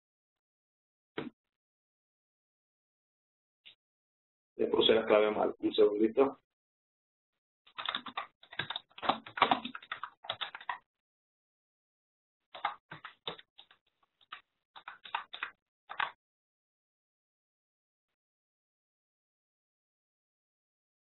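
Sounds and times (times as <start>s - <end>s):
computer keyboard typing: 7.7s - 10.8s, 12.5s - 16.2s.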